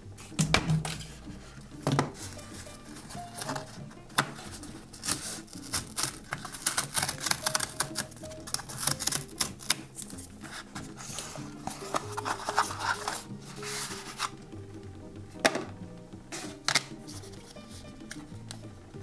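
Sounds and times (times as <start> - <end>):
cardboard tear strip ripping: 4.5 - 11.2.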